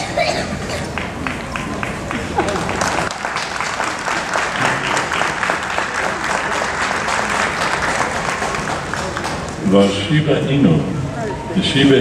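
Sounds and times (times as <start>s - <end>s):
crowd applauding: 0.8s - 9.6s.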